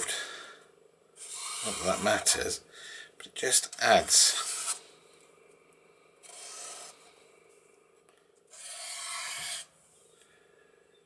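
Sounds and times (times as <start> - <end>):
marker pen drawn on paper: 1.2 - 2.3, 4.3 - 4.8, 6.2 - 7.1, 8.5 - 9.7.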